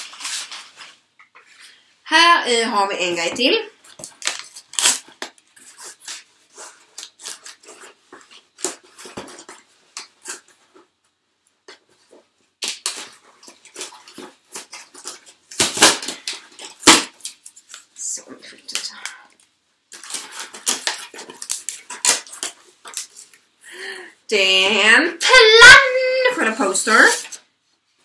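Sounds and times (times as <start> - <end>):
cardboard box tearing: 4.1 - 8.0.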